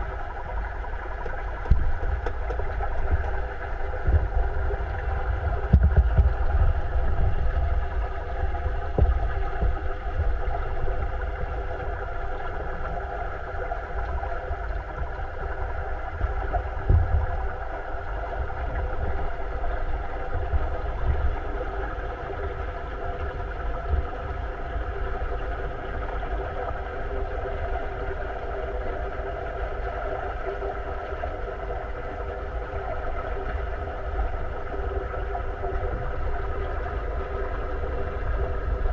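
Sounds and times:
aquarium pumps humming: 0.0 - 38.9.

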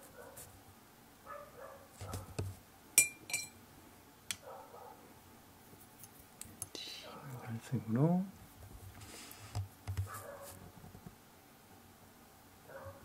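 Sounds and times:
brush clinking on cup: 3.0 - 3.6.

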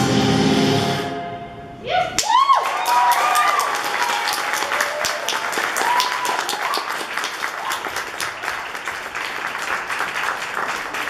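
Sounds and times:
audience applauding: 2.2 - 11.0.

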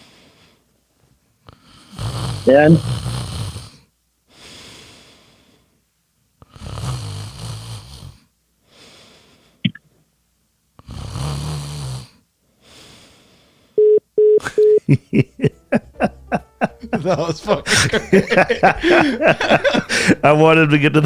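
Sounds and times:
man fake snoring: 1.5 - 3.9, 6.4 - 8.3, 10.8 - 12.2.

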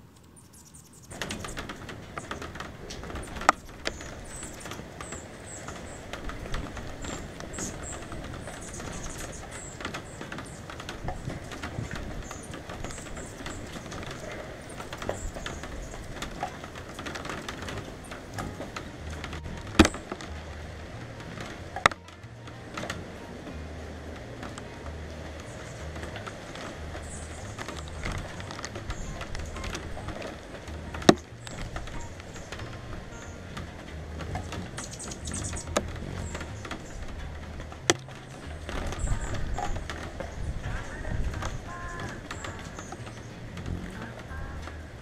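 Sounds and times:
rain falling steadily: 0.0 - 45.0
high-pitched bird chirps: 0.2 - 1.6
raindrops tapping on camera cover: 1.0 - 45.0.

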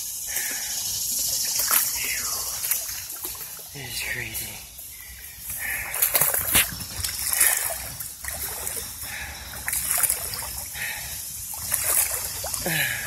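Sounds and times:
footsteps splashing through water: 5.6 - 8.9, 9.5 - 10.6, 11.5 - 12.6.

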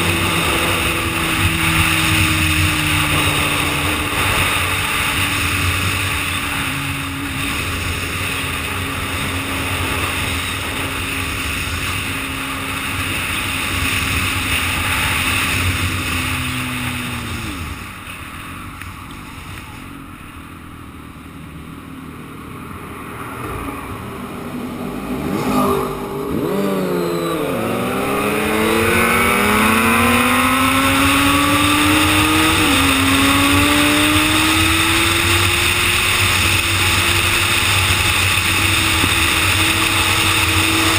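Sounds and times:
motorcycle engine at speed: 0.0 - 40.9.

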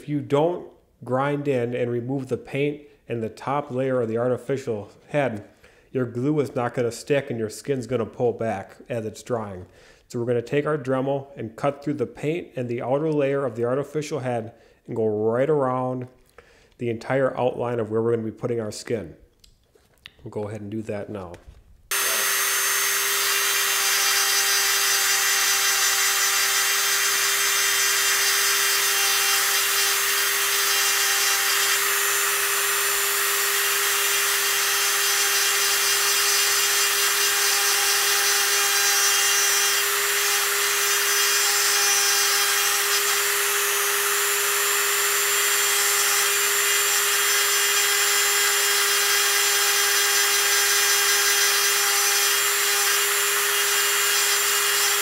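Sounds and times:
rotary tool grinding paint: 21.9 - 55.0.

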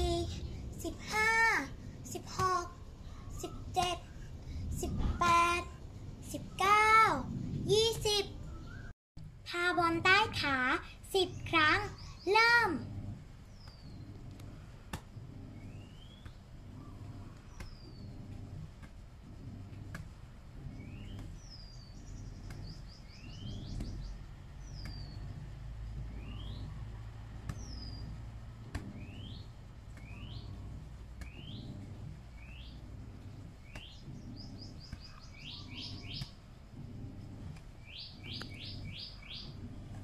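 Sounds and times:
birds calling: 20.6 - 25.4, 26.0 - 26.8, 27.5 - 28.2, 31.2 - 40.0.

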